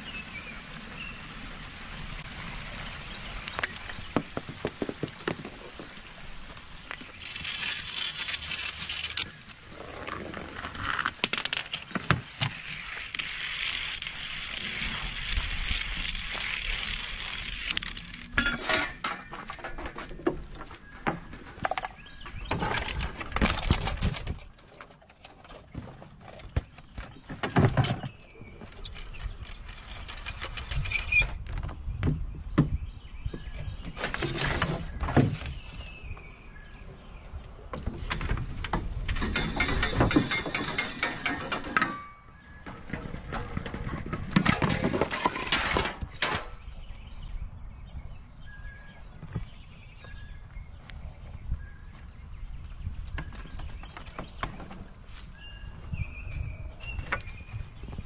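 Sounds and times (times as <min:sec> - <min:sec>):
toy cars rolling on tracks: 0:07.2 - 0:09.3, 0:10.8 - 0:18.3
toys knocking and clattering: 0:37.8 - 0:46.4.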